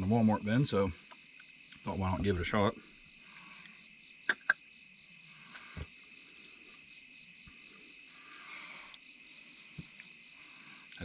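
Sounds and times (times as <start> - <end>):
night insects chorus: 0.0 - 11.0
soft chewing: 5.5 - 7.7, 8.8 - 10.2.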